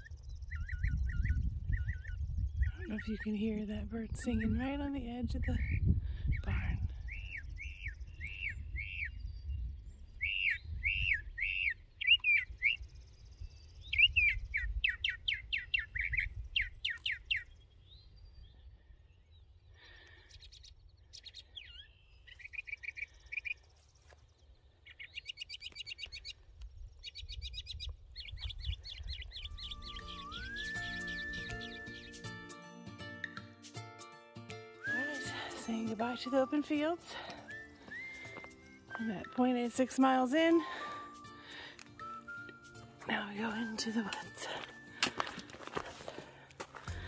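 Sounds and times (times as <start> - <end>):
songbirds singing: 0.0 - 33.8, 34.4 - 47.0.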